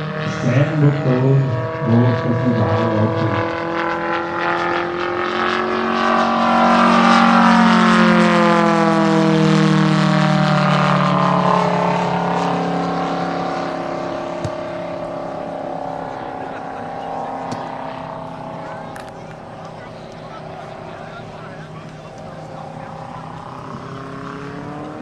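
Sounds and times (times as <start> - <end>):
model airplane engine droning: 0.0 - 25.0.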